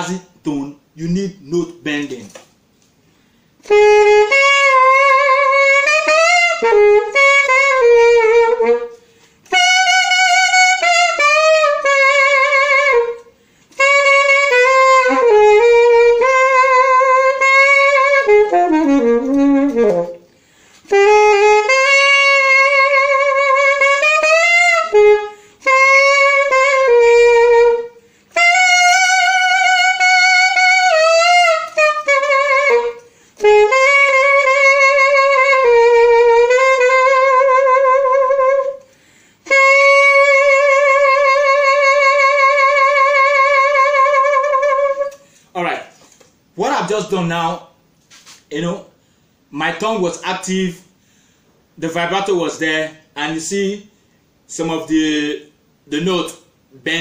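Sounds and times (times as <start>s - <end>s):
alto saxophone playing jazz: 3.1s - 45.9s.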